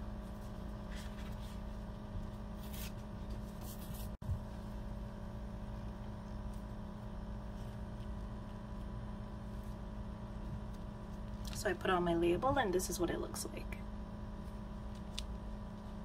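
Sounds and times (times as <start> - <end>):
low electrical hum: 0.0 - 16.0
paper rustling: 0.2 - 4.2.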